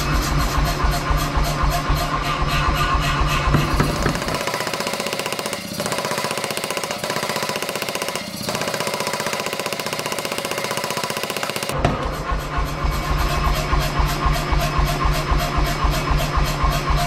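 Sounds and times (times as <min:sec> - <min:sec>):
power hammer pounding steel: 0:03.5 - 0:12.8.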